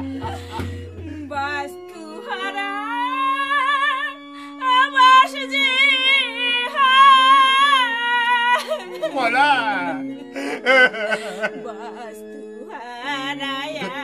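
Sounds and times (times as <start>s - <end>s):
high sung melody with vibrato: 0.0s - 14.0s.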